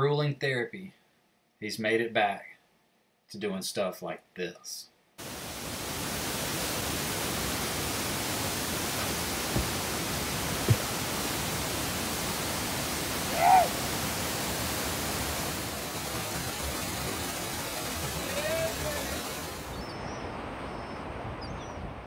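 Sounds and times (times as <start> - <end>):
waterfall and river rushing: 5.2 - 19.8
person calling out loudly: 13.3 - 13.8
faint bird chirps: 19.7 - 21.9.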